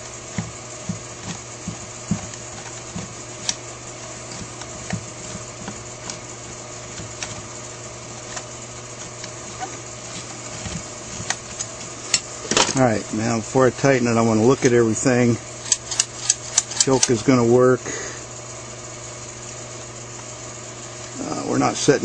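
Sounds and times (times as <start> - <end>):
steady background hum: 0.0 - 22.0
small metal parts clicking: 15.6 - 17.2.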